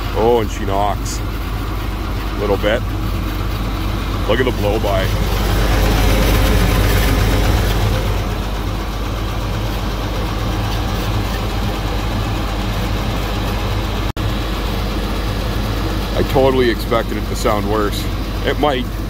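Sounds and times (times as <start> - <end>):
forklift engine idling: 0.0 - 19.0.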